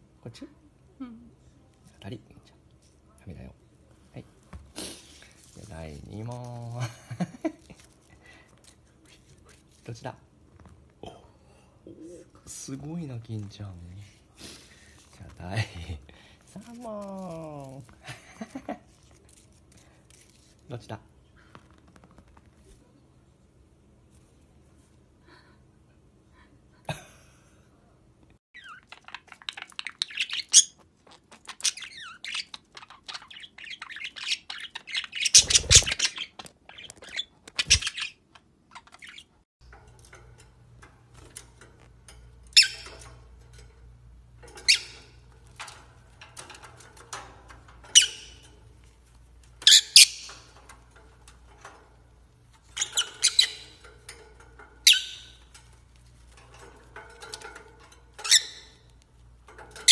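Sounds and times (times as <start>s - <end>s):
budgerigars chirping: 31.5s - 38.2s, 47.9s - 48.5s, 49.6s - 50.6s, 52.8s - 53.9s, 54.8s - 55.5s
lovebirds squawking: 31.6s - 38.2s, 46.4s - 48.6s, 49.5s - 50.6s, 52.7s - 55.5s.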